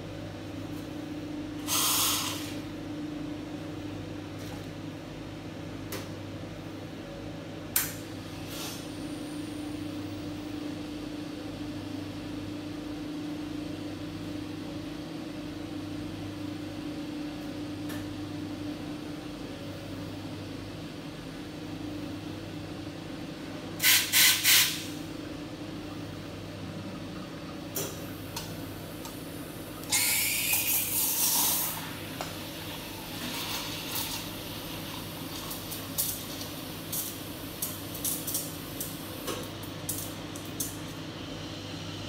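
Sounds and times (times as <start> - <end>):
espresso machine humming: 0.1 - 3.5, 25.1 - 42.0.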